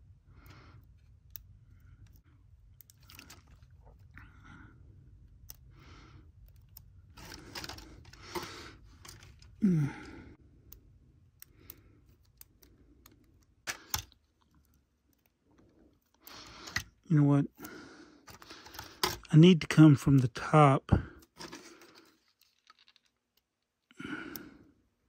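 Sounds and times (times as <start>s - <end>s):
person grunting: 9.6s - 10.2s.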